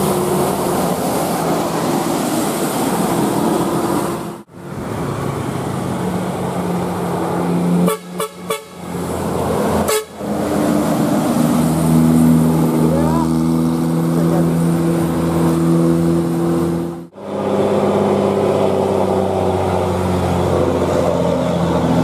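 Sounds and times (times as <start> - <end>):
bus engine noise: 0.0 - 22.0
multi-tone air horns: 7.8 - 8.8, 9.8 - 10.2.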